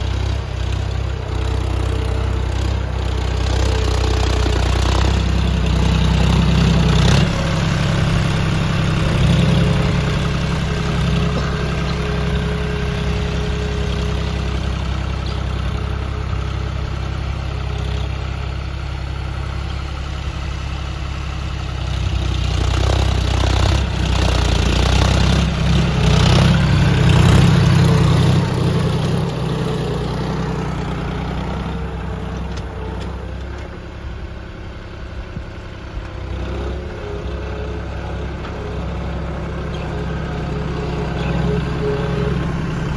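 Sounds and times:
tractor diesel engine running: 0:00.0 - 0:42.9.

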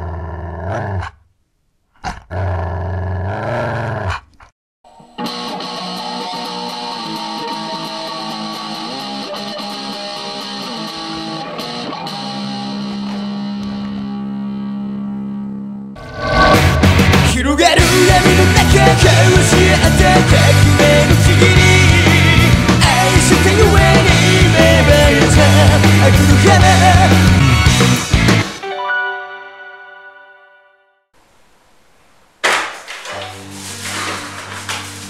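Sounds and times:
wolf growling: 0:00.0 - 0:01.2, 0:02.0 - 0:04.5
guitar music: 0:05.2 - 0:14.7, 0:16.0 - 0:30.0.

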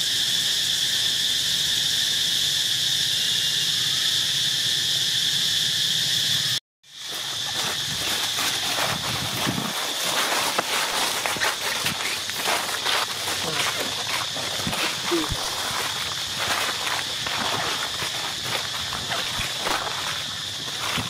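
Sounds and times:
insects singing: 0:00.0 - 0:21.0
dry leaves rustling: 0:07.0 - 0:21.0.

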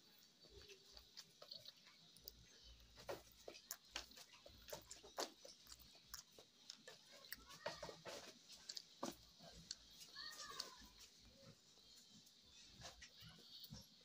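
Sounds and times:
person chewing: 0:00.4 - 0:11.0.

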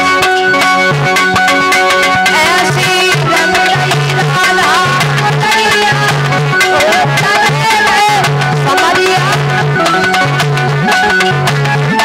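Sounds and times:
hand drum rhythm: 0:00.0 - 0:12.0
held accompanying chords: 0:00.0 - 0:12.0
woman singing: 0:02.3 - 0:10.3.

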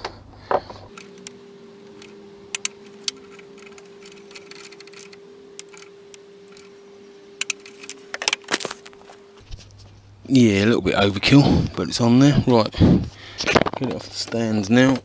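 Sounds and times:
faint steady hum: 0:00.0 - 0:15.0
torque wrench clicking: 0:00.9 - 0:06.7, 0:07.4 - 0:08.4.

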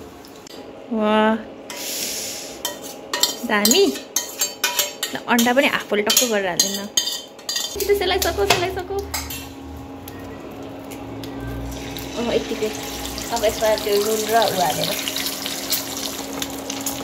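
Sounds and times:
cooktop humming: 0:00.0 - 0:17.0
metal spoon scraping a pan: 0:02.6 - 0:09.6.

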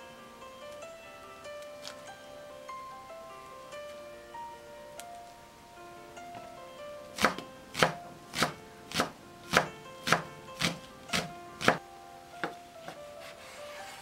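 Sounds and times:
soft background music: 0:00.0 - 0:14.0
knife chopping on wooden board: 0:07.2 - 0:11.8.

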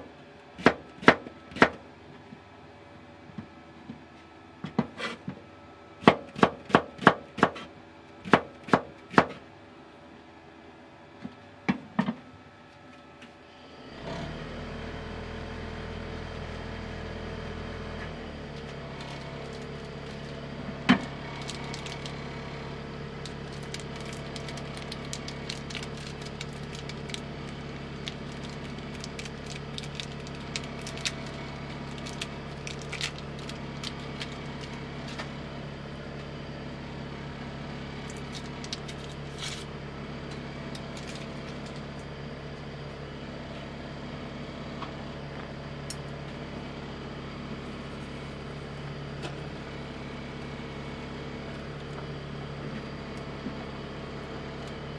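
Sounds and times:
induction cooktop hum: 0:14.7 - 0:54.9.

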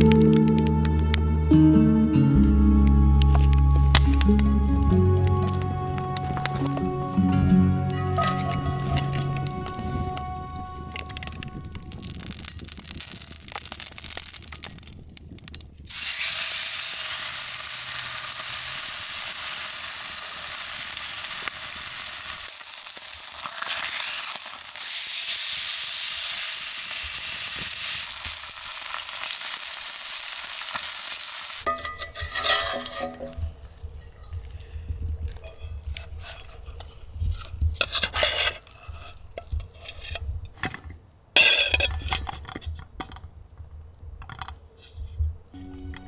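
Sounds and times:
dishes clinking: 0:08.0 - 0:09.5, 0:31.7 - 0:33.6, 0:40.6 - 0:43.2
food sizzling in a frying pan: 0:11.2 - 0:15.0, 0:15.9 - 0:31.7.

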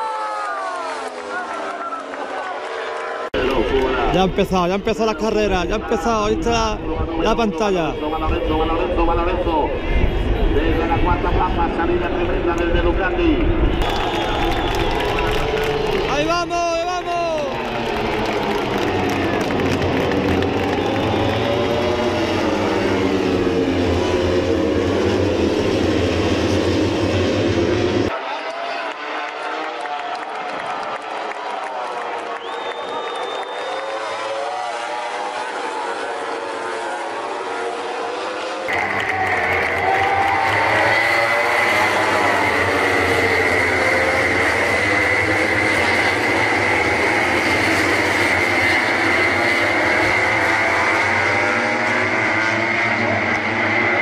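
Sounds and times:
racing motorcycles passing at high revs: 0:13.8 - 0:28.1, 0:29.0 - 0:29.9, 0:33.1 - 0:54.0.

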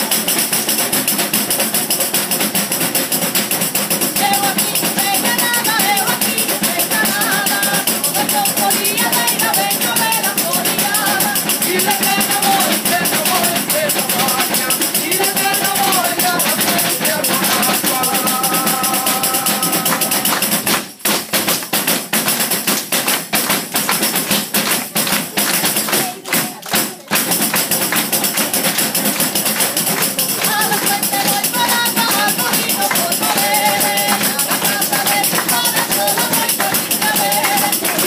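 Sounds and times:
person singing: 0:04.1 - 0:20.4, 0:30.2 - 0:38.0
frame tambourine jingles: 0:27.4 - 0:38.0.

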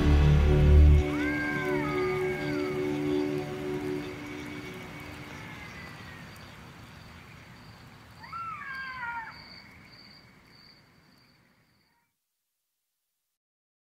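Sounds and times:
faint bush ambience: 0:00.0 - 0:12.2
wavering animal call: 0:01.0 - 0:06.6, 0:08.2 - 0:09.7.

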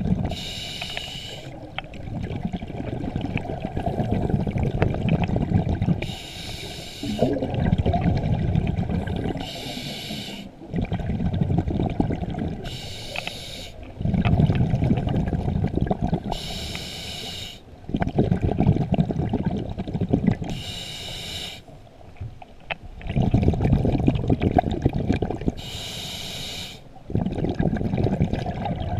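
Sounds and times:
exhaled bubbles rumbling: 0:00.0 - 0:00.5, 0:01.5 - 0:06.2, 0:07.0 - 0:12.8, 0:13.8 - 0:16.6, 0:17.7 - 0:20.6, 0:22.0 - 0:25.6, 0:26.9 - 0:28.9
diver inhaling through regulator: 0:00.3 - 0:01.6, 0:06.0 - 0:07.6, 0:09.0 - 0:10.6, 0:12.6 - 0:13.9, 0:16.3 - 0:17.6, 0:20.5 - 0:21.7, 0:25.6 - 0:26.9.

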